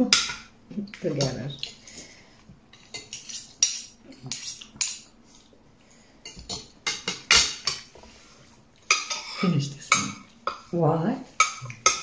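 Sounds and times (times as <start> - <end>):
cutlery clinking and scraping on plate: 2.7 - 5.1, 6.3 - 7.9, 8.9 - 10.7, 11.4 - 12.0.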